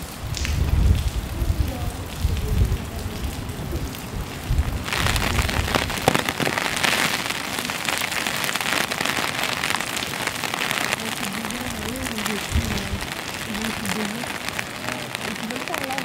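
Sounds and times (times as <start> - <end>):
rain on stone paving: 0.0 - 16.0
low rumble: 0.4 - 6.1.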